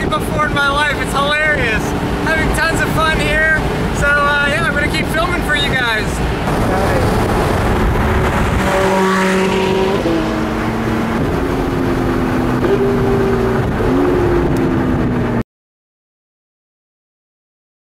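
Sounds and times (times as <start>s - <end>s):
car engine at highway speed: 0.0s - 15.4s
wind and road noise: 0.0s - 15.4s.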